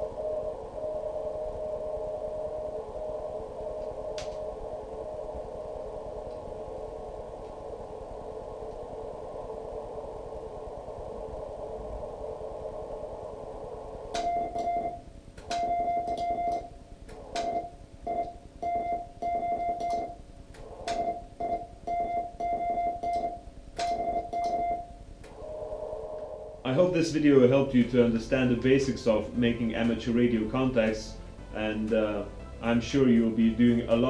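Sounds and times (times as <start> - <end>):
receiver hiss: 0.0 - 34.0
faint keyed morse tone: 14.2 - 16.7
morse sidetone with clicks: 22.4 - 24.6.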